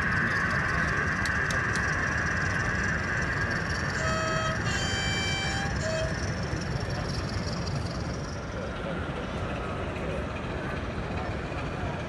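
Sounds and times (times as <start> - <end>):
two-tone model train horn: 3.9 - 6.3.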